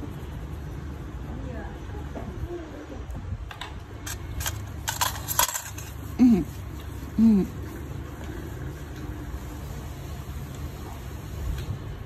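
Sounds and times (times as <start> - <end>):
person's short voiced sounds: 6.2 - 6.6, 7.2 - 7.6.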